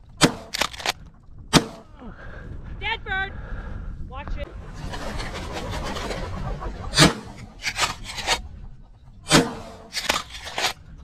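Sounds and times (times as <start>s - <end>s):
loud shotgun shots: 0.1s - 1.8s, 9.3s - 10.8s.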